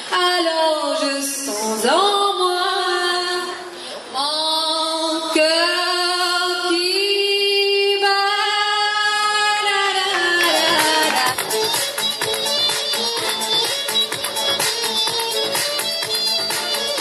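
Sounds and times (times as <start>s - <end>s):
woman singing unaccompanied: 0.1s - 3.6s, 4.2s - 11.4s.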